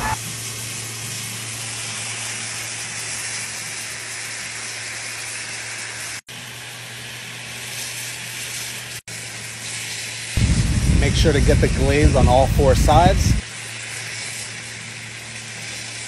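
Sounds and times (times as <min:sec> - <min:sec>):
sauce sizzling in hot pan: 0:00.1 - 0:16.0
low steady hum: 0:10.4 - 0:13.4.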